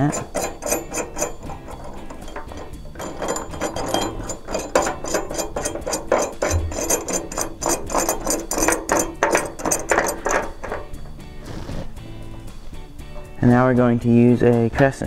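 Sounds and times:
metal nut clicking and rattling: 0.0 - 11.4, 12.1 - 13.6.

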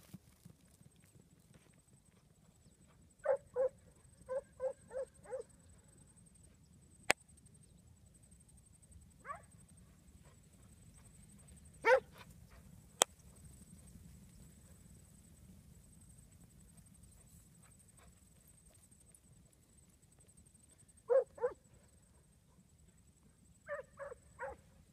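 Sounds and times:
sheepdog barking: 3.2 - 5.5, 9.2 - 9.5, 11.8 - 12.2, 21.1 - 21.6, 23.7 - 24.6.

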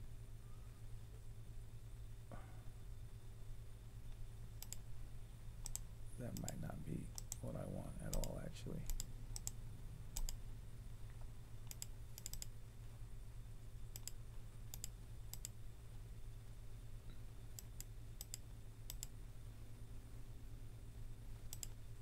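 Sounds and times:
steady low hum: 0.0 - 22.0
computer mouse clicking: 4.1 - 4.9, 5.6 - 9.6, 10.2 - 10.4, 11.6 - 12.5, 13.9 - 15.6, 17.5 - 19.2, 21.4 - 21.8.

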